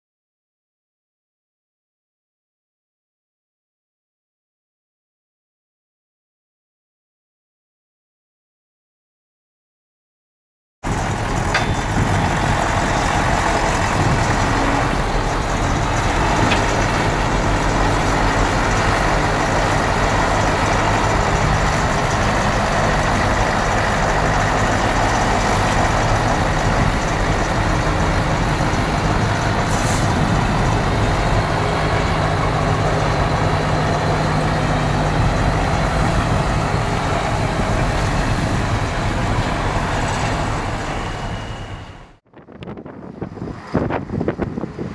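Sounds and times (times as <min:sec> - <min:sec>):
diesel truck engine running: 0:10.8 - 0:42.2.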